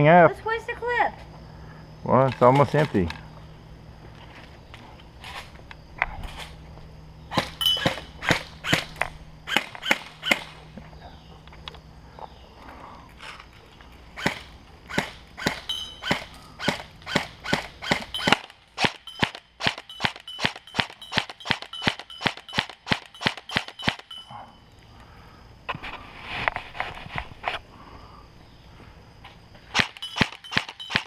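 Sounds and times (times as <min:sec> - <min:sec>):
airsoft rifle shots cracking: 0:07.3 - 0:10.6, 0:14.2 - 0:24.1, 0:29.7 - 0:31.0.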